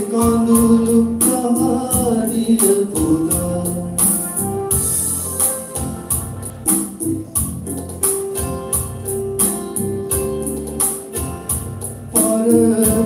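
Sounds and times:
person singing: 0.0s - 4.6s, 12.1s - 13.0s
instrumental backing music: 0.0s - 13.0s.

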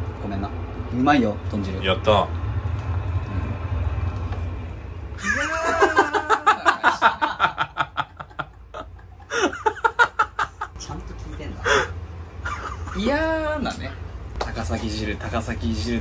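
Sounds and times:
low hum: 0.0s - 16.0s
bursts of laughter: 5.2s - 10.7s.

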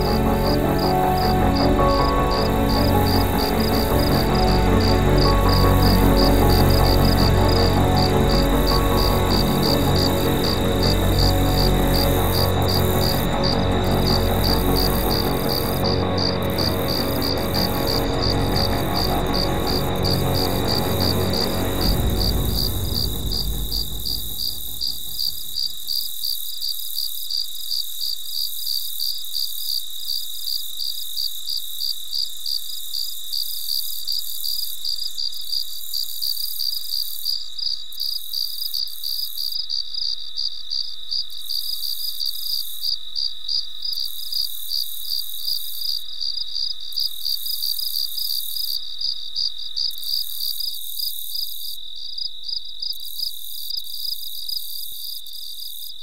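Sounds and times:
low background music: 0.0s - 25.3s
crickets chirping: 0.0s - 56.0s.

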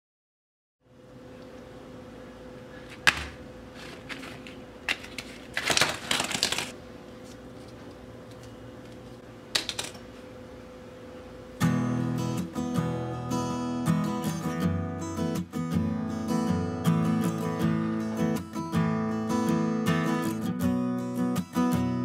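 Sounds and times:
faint steady hum: 0.8s - 22.0s
candles clattering on wood: 3.1s - 6.7s
acoustic guitar strumming: 11.6s - 22.0s.

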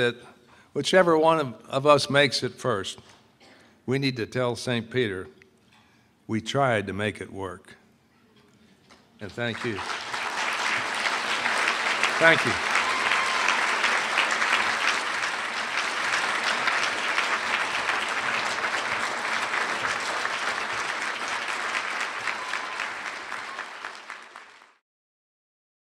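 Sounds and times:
audience applauding: 9.2s - 24.8s.

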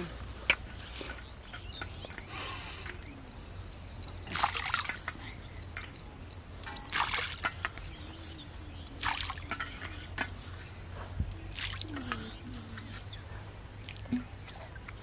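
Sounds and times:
splashes in pond water: 4.2s - 5.2s, 6.6s - 7.6s, 8.9s - 9.6s, 11.5s - 12.3s.

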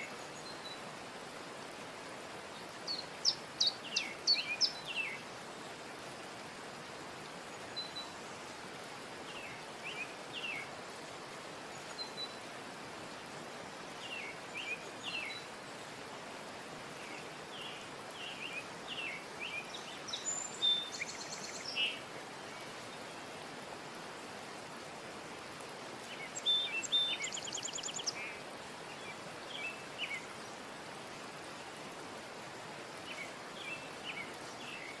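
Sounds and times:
background hiss: 0.0s - 35.0s
small birds chirping: 2.4s - 5.4s, 17.0s - 23.3s, 26.0s - 30.8s.

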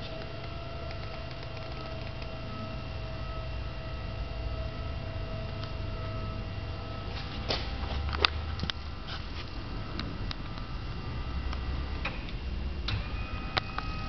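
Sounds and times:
bed actuator motor humming: 0.0s - 14.0s.

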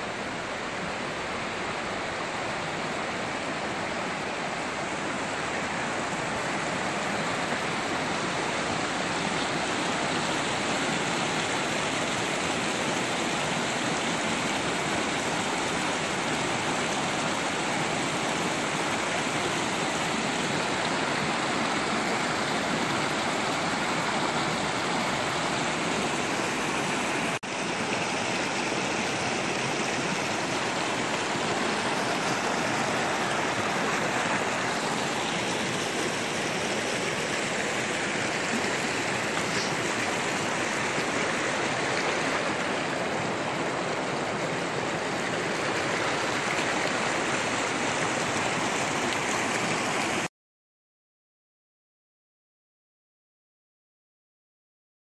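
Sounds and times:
creek rushing over rocks: 0.0s - 50.3s.

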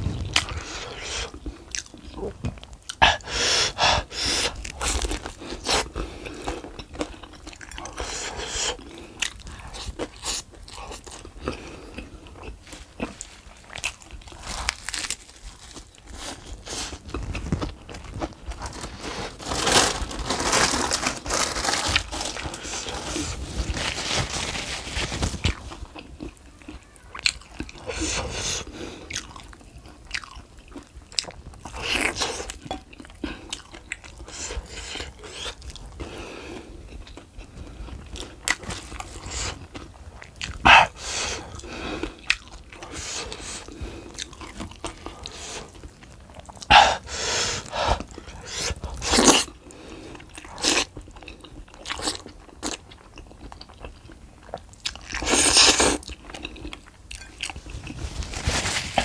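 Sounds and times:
crunchy bites and chewing: 4.5s - 24.0s, 47.6s - 58.0s.

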